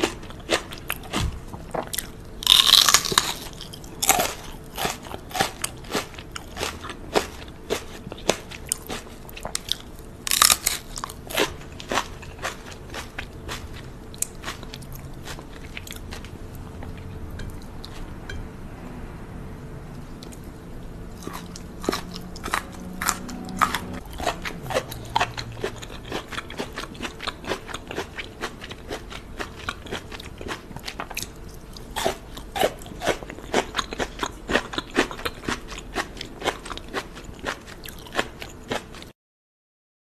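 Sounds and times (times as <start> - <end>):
crunching bites of asparagus: 0.5 - 5.6, 7.7 - 16.1.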